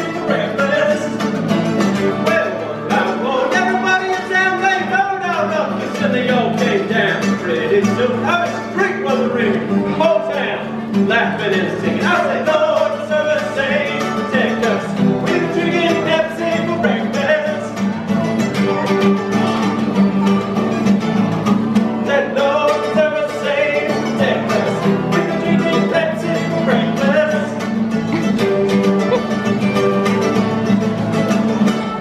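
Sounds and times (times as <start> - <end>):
men singing: 0.0 - 1.2, 2.1 - 17.8, 22.0 - 29.5
acoustic guitar strumming: 0.0 - 32.0
mandolin strumming: 0.0 - 32.0.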